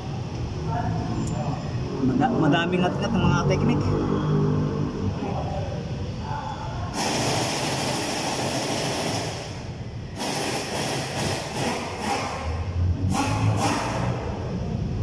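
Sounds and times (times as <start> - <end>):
loud steady hiss: 6.9 - 12.5.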